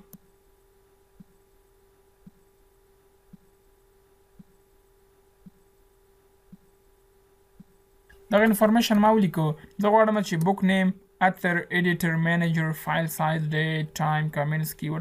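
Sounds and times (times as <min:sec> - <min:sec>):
faint steady hum: 0:00.0 - 0:15.0
soft low thumps: 0:04.3 - 0:04.6, 0:05.4 - 0:06.9, 0:07.5 - 0:07.8.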